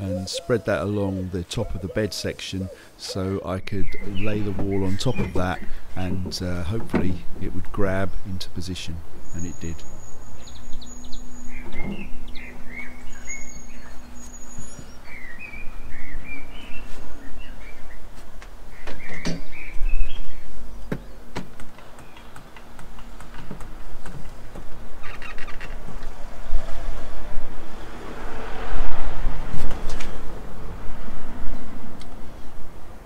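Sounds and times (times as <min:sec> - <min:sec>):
small birds chirping: 0:00.0 - 0:06.6, 0:09.2 - 0:23.2.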